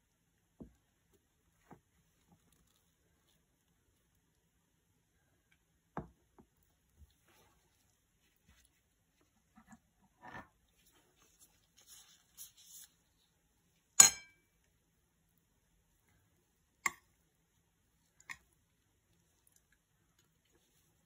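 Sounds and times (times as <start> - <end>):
metal spoon clinking on ceramic plate: 14.0 - 14.4.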